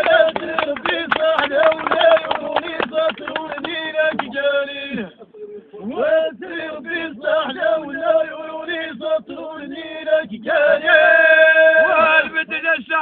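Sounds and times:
man chanting: 10.7s - 13.0s.

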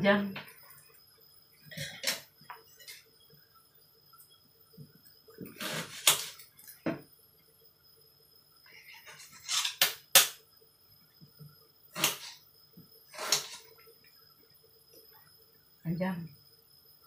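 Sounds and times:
kitchen utensils and dishes clattering: 9.0s - 9.9s, 13.2s - 13.7s.

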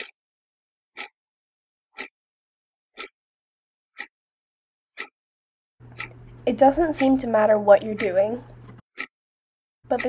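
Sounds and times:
clock ticking: 1.0s - 1.2s, 2.0s - 2.2s, 3.0s - 3.2s, 5.0s - 5.2s, 5.8s - 9.1s
low steady hum: 5.8s - 8.8s.

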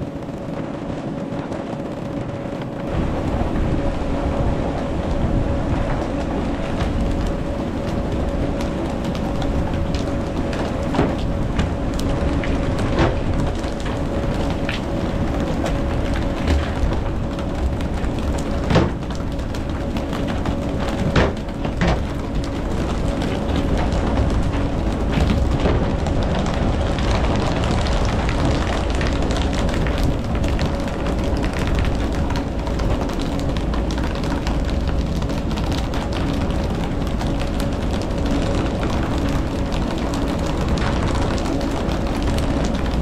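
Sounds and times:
boat engine running: 2.3s - 43.0s
rushing noise: 2.8s - 19.0s.

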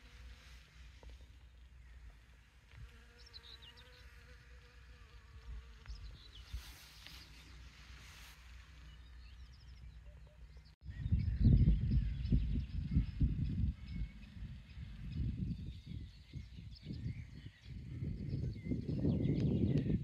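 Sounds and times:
flying insect buzzing: 2.2s - 8.9s.

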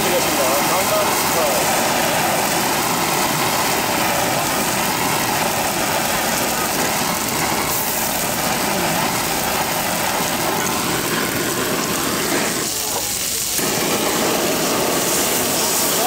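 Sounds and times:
butane torch flame hissing: 0.0s - 16.0s
griddle sizzling: 0.0s - 16.0s.

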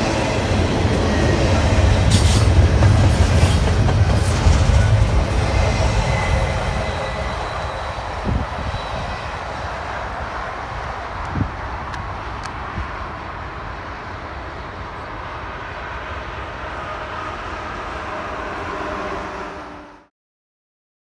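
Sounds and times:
rail clicks: 0.0s - 13.4s
train cars rumbling past: 0.0s - 20.1s.

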